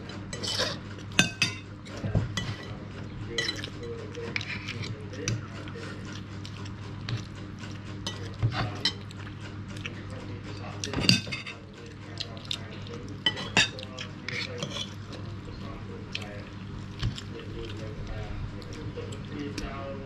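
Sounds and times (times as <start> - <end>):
low steady hum: 0.0 - 20.0
cutlery clinking on plates: 0.3 - 6.0, 10.6 - 11.6, 13.2 - 15.0.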